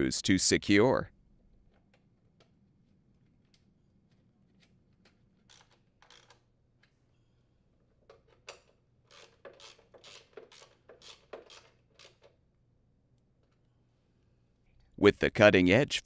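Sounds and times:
socket ratchet clicking: 5.5s - 6.5s, 8.5s - 12.4s.

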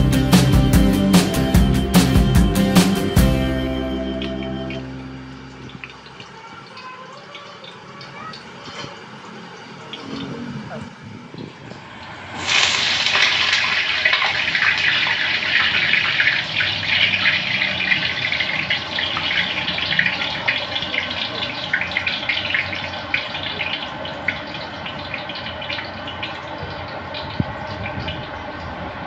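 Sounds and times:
soup boiling in a pot: 11.8s - 29.0s.

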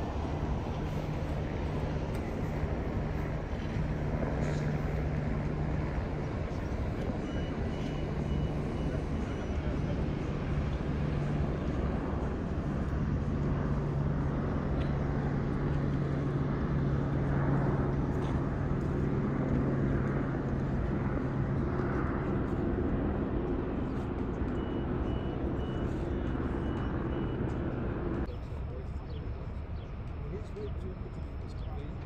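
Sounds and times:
low engine drone: 0.0s - 32.0s
faint high beeps: 7.1s - 10.0s, 23.9s - 27.8s.

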